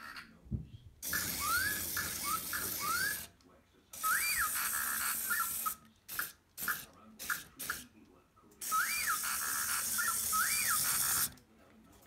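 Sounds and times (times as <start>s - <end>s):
toy motor whirring: 1.0s - 3.4s, 4.0s - 7.9s, 8.6s - 11.4s
toy robot electronic beeps and whistles: 1.1s - 3.3s, 4.0s - 5.8s, 8.6s - 11.3s.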